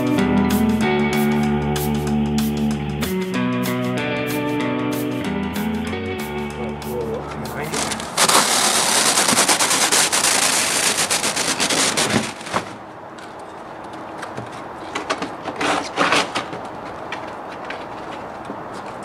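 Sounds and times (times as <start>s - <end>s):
sheeting rattling on metal roofing: 7.7s - 13.5s.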